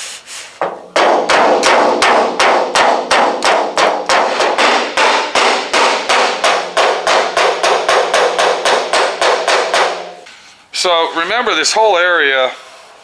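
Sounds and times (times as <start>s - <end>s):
hammer beating sheet metal: 0.6s - 10.4s.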